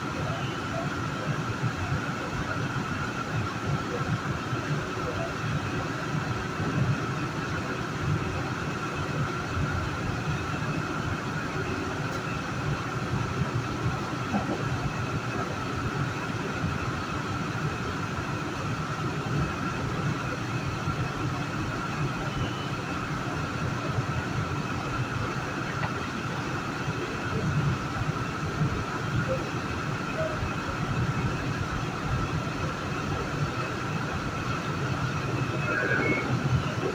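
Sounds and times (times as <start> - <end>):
train wheels rumbling on rails: 0.0 - 22.3
high whine: 29.2 - 36.9.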